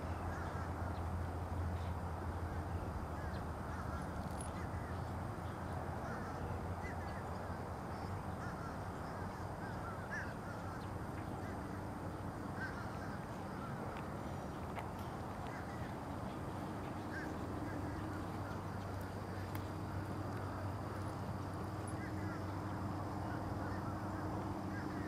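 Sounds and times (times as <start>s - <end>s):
low background rush: 0.0s - 25.0s.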